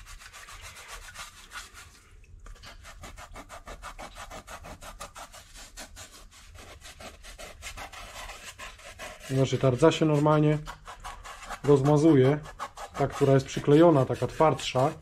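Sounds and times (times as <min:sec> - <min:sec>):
hand rubbing steel plate: 0:06.1 - 0:15.0.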